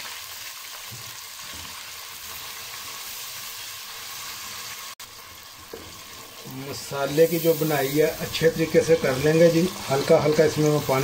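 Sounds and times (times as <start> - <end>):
spices sizzling in hot fat: 0.0 - 11.0.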